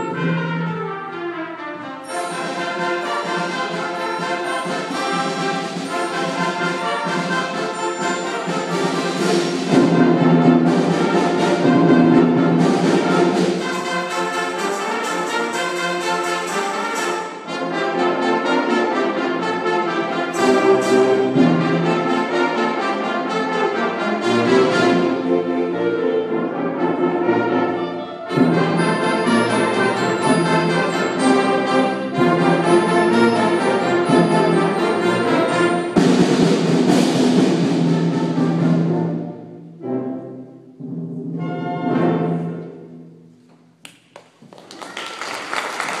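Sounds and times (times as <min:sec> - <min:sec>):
concert band playing chords: 0:28.3 - 0:38.0
applause: 0:44.1 - 0:46.0.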